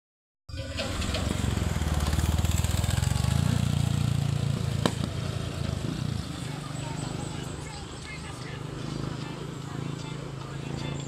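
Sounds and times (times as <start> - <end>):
small motorcycle engine approaching: 0.5 - 11.0.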